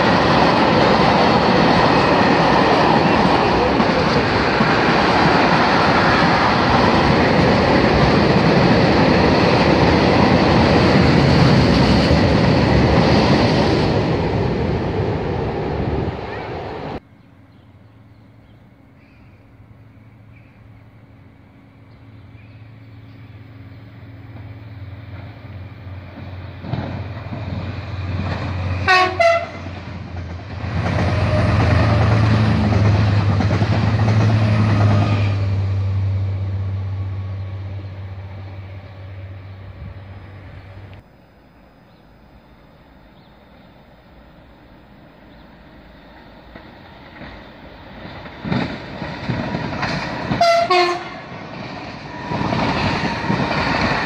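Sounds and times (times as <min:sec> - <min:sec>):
railcar engines and wheels rumbling: 0:00.0 - 0:54.0
train horn: 0:28.7 - 0:29.8, 0:31.0 - 0:32.6, 0:50.3 - 0:51.4.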